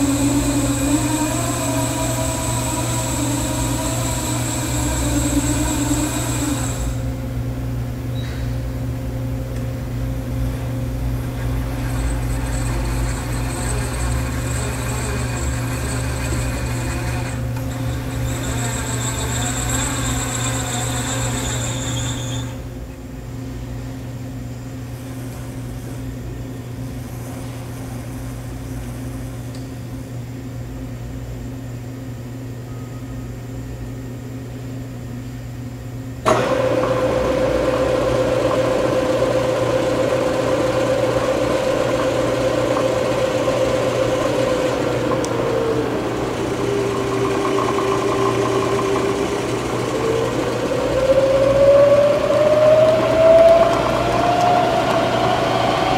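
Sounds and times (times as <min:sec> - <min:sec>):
high whine: 0:00.0 - 0:07.4, 0:38.4 - 0:55.9
motor whine: 0:00.0 - 0:07.4, 0:10.5 - 0:22.7, 0:36.2 - 0:55.9
electrical hum: 0:00.0 - 0:55.9
motor starting click: 0:36.3 - 0:45.4, 0:52.2 - 0:55.9.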